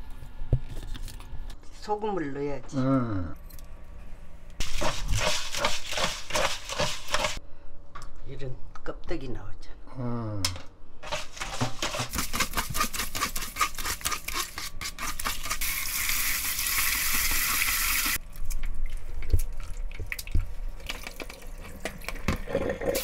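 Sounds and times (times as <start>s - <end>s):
oysters rubbed with salt: 4.6s - 7.4s, 11.0s - 15.6s.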